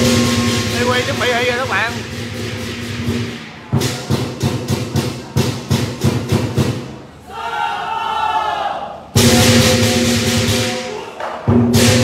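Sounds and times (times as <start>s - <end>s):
cymbal crashes: 0.0s - 7.0s, 9.1s - 12.0s
heavy drum beats: 0.0s - 7.2s, 9.1s - 12.0s.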